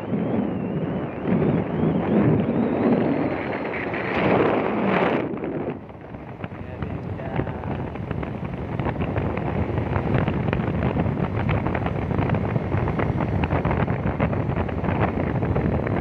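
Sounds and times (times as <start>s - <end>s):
scooter road and engine noise: 0.0s - 16.0s
wind buffeting microphone: 0.0s - 16.0s.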